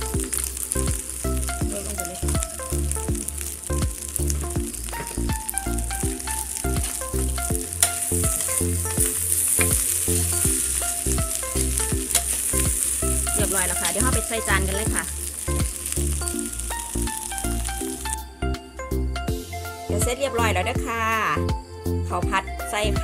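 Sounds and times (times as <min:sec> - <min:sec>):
rice sizzling in a wok: 0:00.0 - 0:18.2
background music: 0:00.0 - 0:23.0.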